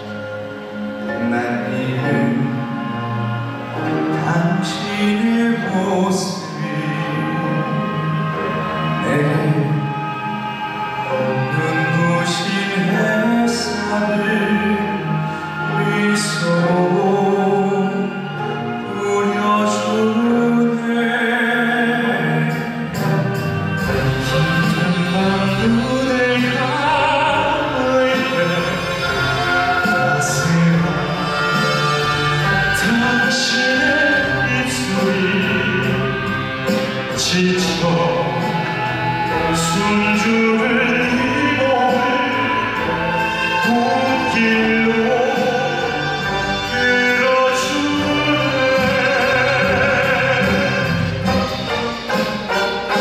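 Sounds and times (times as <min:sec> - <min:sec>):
male vocal quartet singing chords: 0:00.0 - 0:53.0
traditional orchestra accompanying: 0:00.0 - 0:53.0.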